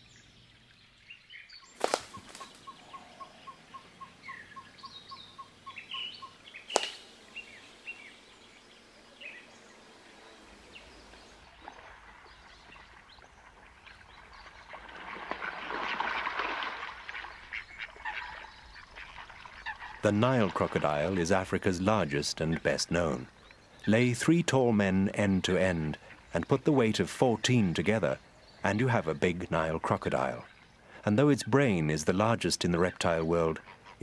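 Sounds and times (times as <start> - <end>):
birds chirping: 0.0 - 14.8, 17.1 - 34.0
sharp snaps: 1.8 - 2.6, 6.7 - 7.2.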